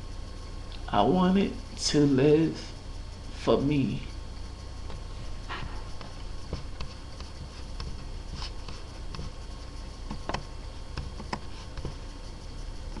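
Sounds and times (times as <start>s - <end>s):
room hum and hiss: 0.0s - 13.0s
faint clicks and taps: 6.0s - 9.3s, 10.0s - 12.0s.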